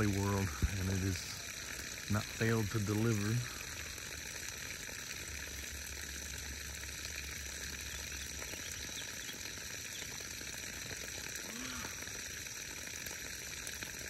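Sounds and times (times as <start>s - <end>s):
insects droning: 6.8s - 10.2s.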